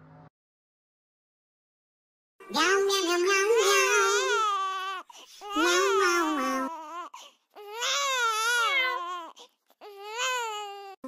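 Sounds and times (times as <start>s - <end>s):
high baby-like crying: 3.5s - 11.0s.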